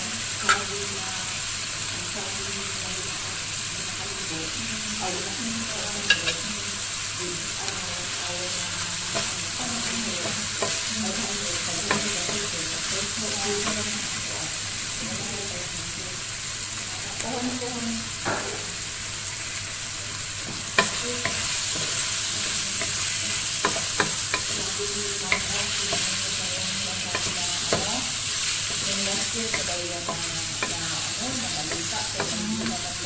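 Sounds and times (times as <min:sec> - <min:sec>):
food sizzling in a wok: 0:00.0 - 0:33.0.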